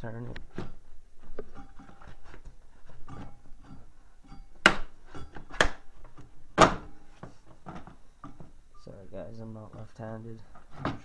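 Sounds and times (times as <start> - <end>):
sharp knocks: 4.6 - 5.8.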